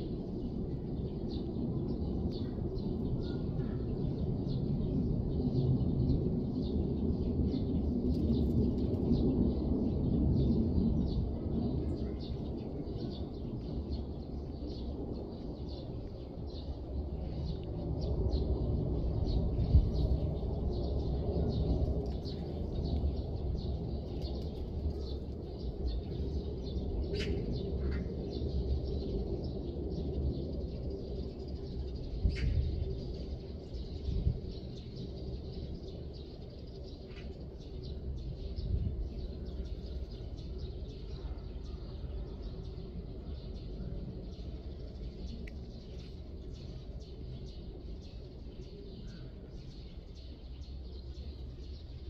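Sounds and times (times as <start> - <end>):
small birds chirping: 0.4 - 52.0.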